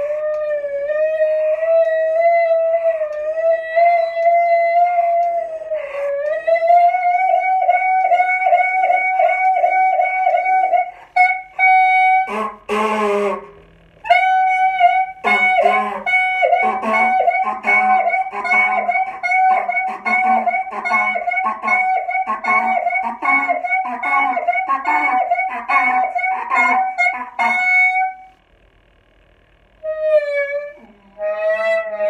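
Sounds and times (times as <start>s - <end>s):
high reedy pulsing note: 2.5s - 28.4s
lower honking notes: 2.6s - 28.4s
buzzy squawk: 14.1s - 28.3s.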